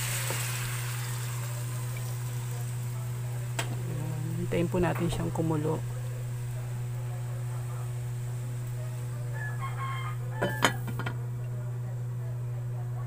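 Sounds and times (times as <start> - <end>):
steady low hum: 0.1 - 13.0
rooster crowing: 9.1 - 10.9
glass pot lid clinking: 10.4 - 11.1.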